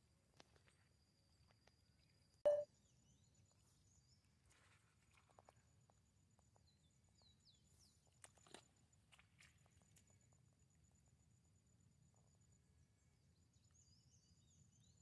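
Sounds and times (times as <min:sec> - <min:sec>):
faint high chirps: 0:02.5 - 0:02.7.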